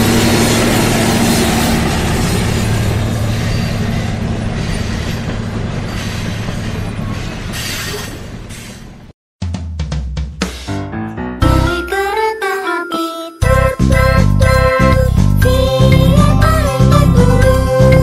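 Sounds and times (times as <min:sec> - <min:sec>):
train rumbling on rails: 0:00.0 - 0:09.1.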